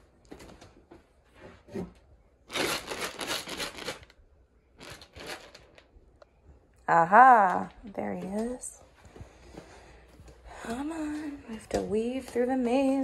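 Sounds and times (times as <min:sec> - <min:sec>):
kibble rattling in plastic container: 0:02.5 - 0:04.2, 0:04.8 - 0:05.8.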